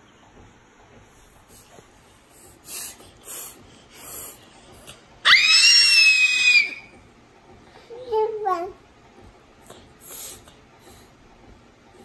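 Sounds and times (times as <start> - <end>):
baby squealing: 5.3 - 6.9.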